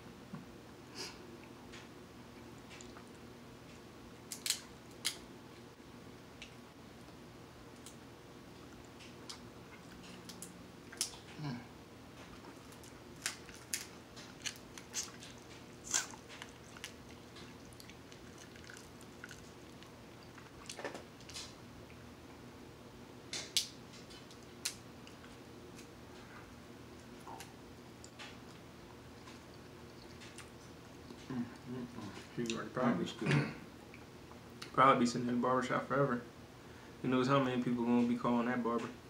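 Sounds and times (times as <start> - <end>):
chewing and mouth sounds: 2.6 - 3.2, 12.2 - 22.0, 27.0 - 32.6
crab shells cracking: 4.3 - 5.2, 12.6 - 21.5.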